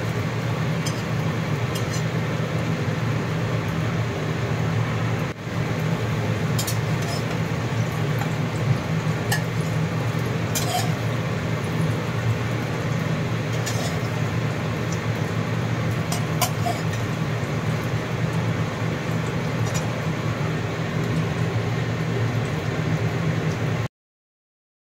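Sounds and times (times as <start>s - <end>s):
omelette sizzling in oil: 0.0s - 23.8s
metal spatula scraping pan: 0.8s - 2.2s, 6.6s - 7.5s, 10.5s - 11.1s, 13.5s - 14.2s, 16.1s - 17.1s, 19.6s - 20.0s.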